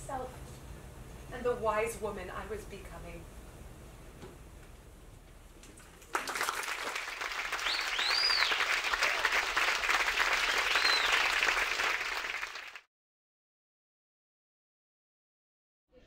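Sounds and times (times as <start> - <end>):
audience applauding: 6.0 - 12.9
whistles: 7.5 - 8.7, 10.4 - 11.4.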